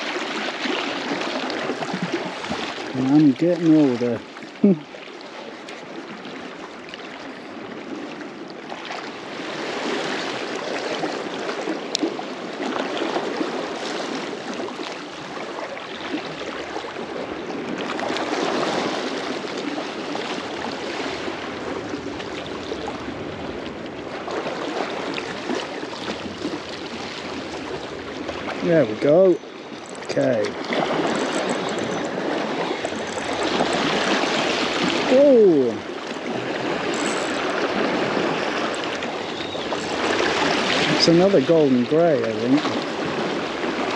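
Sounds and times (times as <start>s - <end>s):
sea waves lapping against rocks: 0.0s - 43.9s.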